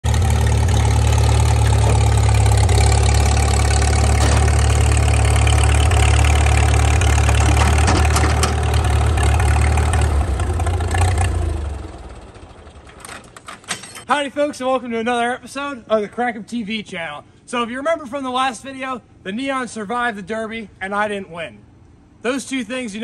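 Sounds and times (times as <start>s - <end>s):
tractor engine running: 0.0s - 14.0s.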